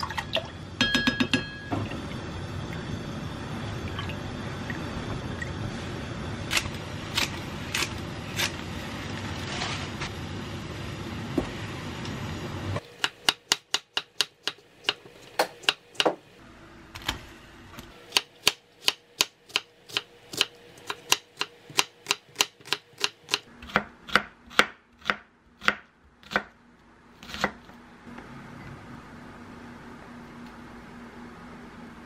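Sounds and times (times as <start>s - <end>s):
knife chopping onion on board: 12.9s - 16.2s, 18.1s - 26.5s.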